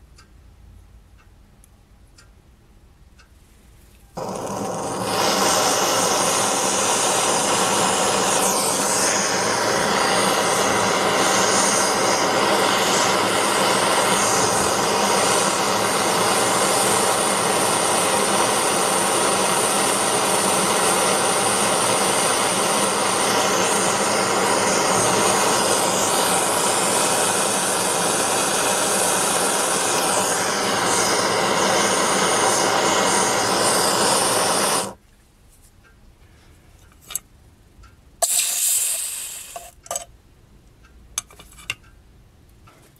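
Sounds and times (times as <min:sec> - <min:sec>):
gas blowtorch roaring: 0:04.2 - 0:35.0, 0:38.2 - 0:39.7.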